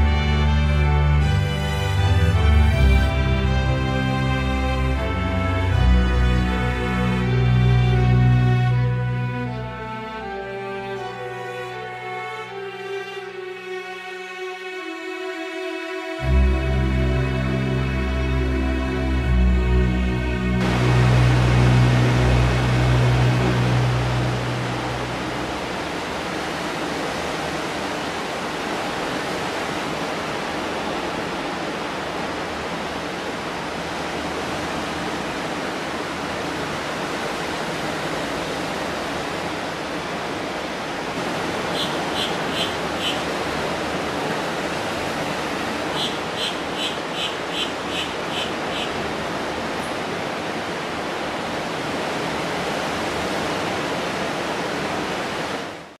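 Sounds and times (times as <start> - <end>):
waves washing onto a beach: 20.6 - 56.0
bird calling high notes: 41.5 - 43.4, 45.8 - 49.2.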